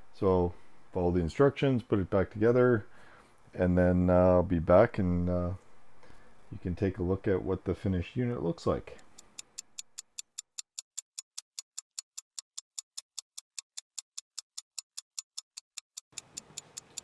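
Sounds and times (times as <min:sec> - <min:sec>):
sharp ticks: 0:08.9 - 0:17.0.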